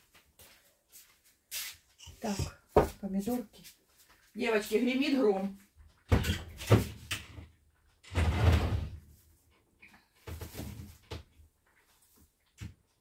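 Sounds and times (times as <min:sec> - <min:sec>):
doors and cupboards clunking: 0:06.0 - 0:09.1.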